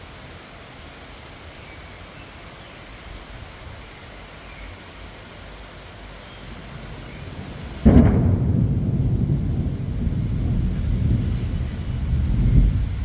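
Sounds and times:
rain hissing: 0:00.0 - 0:13.0
low thunder rumble: 0:06.7 - 0:13.0.

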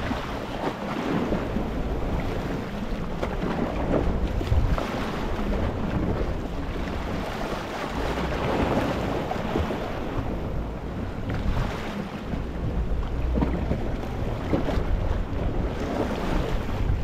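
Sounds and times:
waves washing over rocky shore: 0:00.0 - 0:12.1
low rumble: 0:01.0 - 0:17.0.

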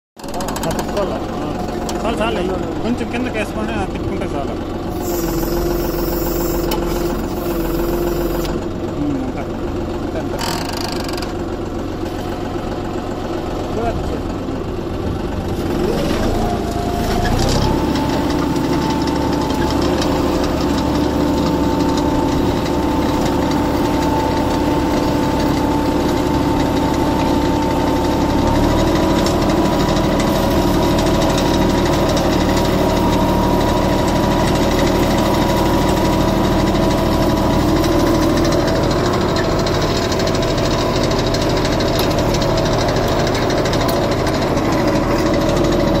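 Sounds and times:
tractor diesel engine under load: 0:00.2 - 0:46.0.

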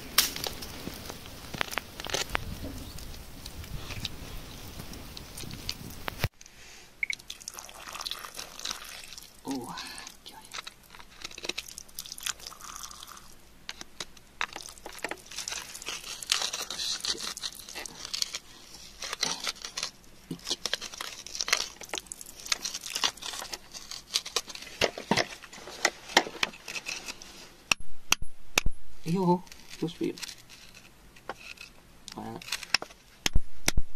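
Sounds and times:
metal tool scraping in gritty soil: 0:00.4 - 0:04.8, 0:13.2 - 0:27.6, 0:29.1 - 0:33.0.

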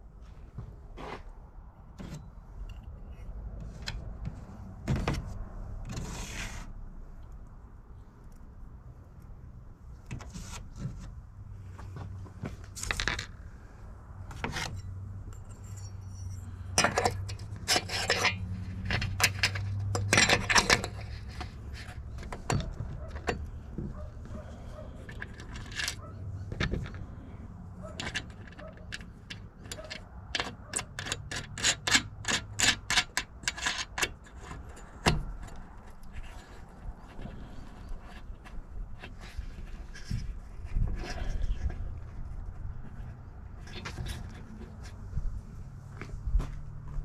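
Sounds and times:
metal hardware clicking and clinking: 0:14.4 - 0:27.1, 0:27.8 - 0:38.2.

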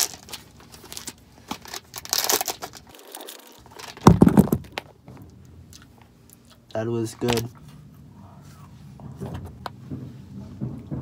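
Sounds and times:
wrapper crinkling and tearing: 0:00.0 - 0:04.9
knock: 0:09.0 - 0:11.0.

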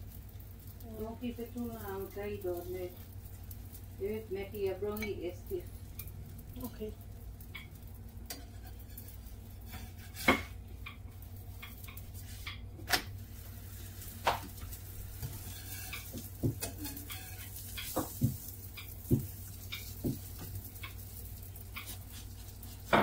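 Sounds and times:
utensils clinking against dishes: 0:15.4 - 0:18.1.

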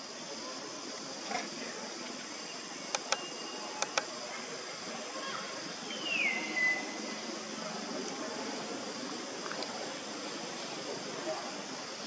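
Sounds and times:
insect buzz: 0:00.0 - 0:07.6
sharp clicks: 0:02.9 - 0:04.1.

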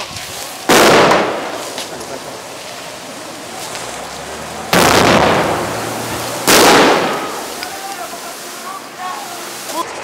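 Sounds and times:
grenade bang: 0:00.7 - 0:01.9, 0:04.7 - 0:07.6
water jets hissing: 0:01.3 - 0:10.0.

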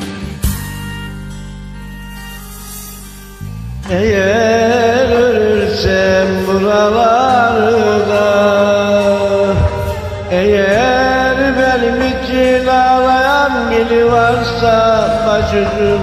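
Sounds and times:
karaoke backing track: 0:00.0 - 0:16.0
man singing wordless melody: 0:03.8 - 0:16.0.

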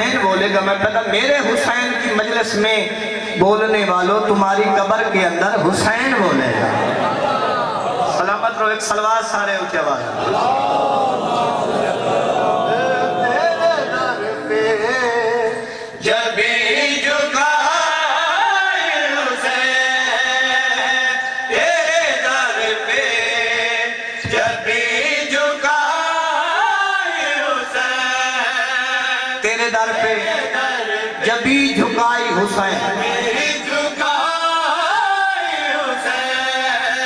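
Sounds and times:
congregation chanting: 0:10.2 - 0:31.4.

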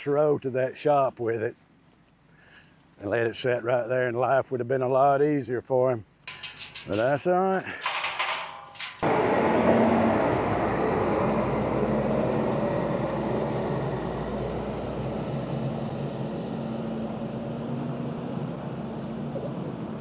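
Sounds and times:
diesel engine running: 0:08.8 - 0:20.0.

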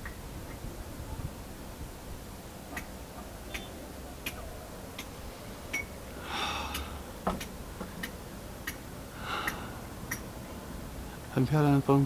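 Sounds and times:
quiet hiss: 0:00.0 - 0:12.0
short breathy noise: 0:05.2 - 0:07.2, 0:09.1 - 0:09.9
faint regular ticking: 0:06.7 - 0:10.5.

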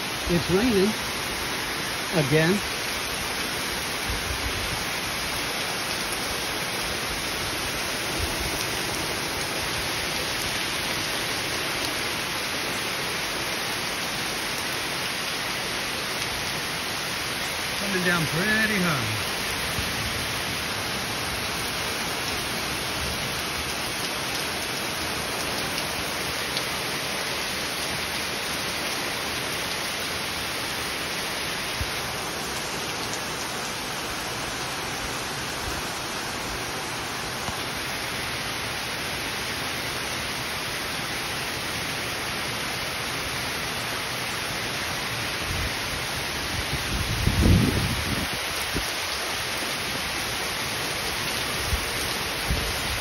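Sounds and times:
heavy rain on leaves: 0:00.0 - 0:53.0.

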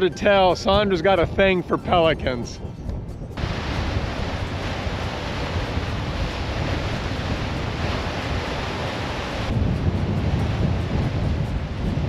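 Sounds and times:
wind buffeting microphone: 0:00.0 - 0:12.0
surf breaking over boulders: 0:03.4 - 0:12.0.

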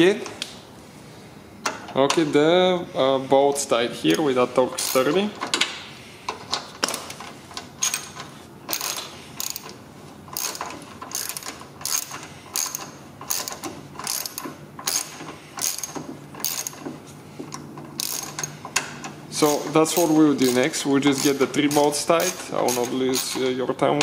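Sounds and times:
hand ratchet clicking: 0:06.8 - 0:16.9, 0:17.5 - 0:23.5.

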